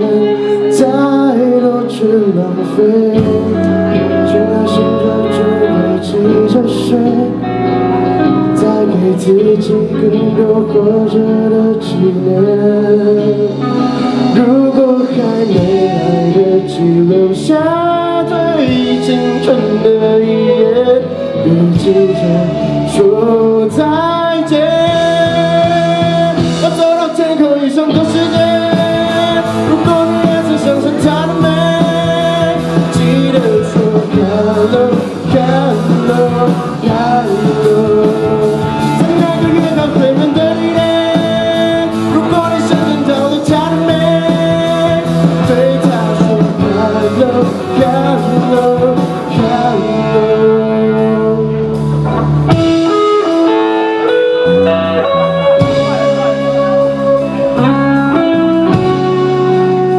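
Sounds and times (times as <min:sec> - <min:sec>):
bass guitar: 0:00.0 - 0:59.9
drums: 0:00.0 - 0:59.9
electric guitar lead melody: 0:00.0 - 0:59.9.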